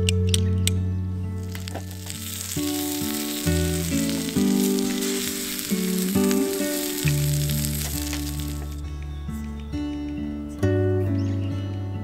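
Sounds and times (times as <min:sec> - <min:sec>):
background music: 0:00.0 - 0:12.0
food sizzling in frying pan: 0:01.4 - 0:08.8.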